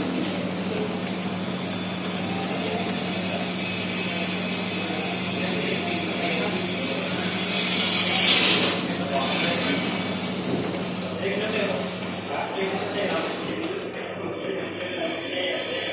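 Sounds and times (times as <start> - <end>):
machine hum: 0.0 - 15.9
faint high whine: 0.8 - 9.7.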